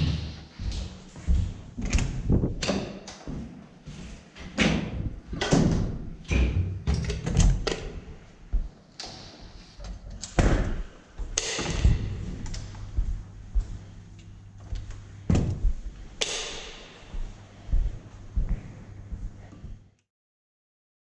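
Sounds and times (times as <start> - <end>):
heavy steel door thumps: 11.6 - 12.4, 15.3 - 15.8.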